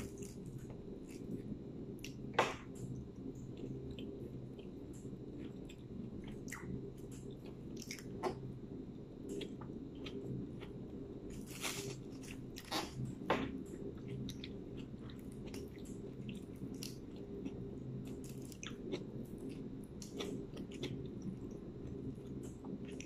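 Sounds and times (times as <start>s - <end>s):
steady low hum: 0.0s - 23.0s
person chewing with wet smacks: 2.0s - 8.4s, 13.7s - 21.6s.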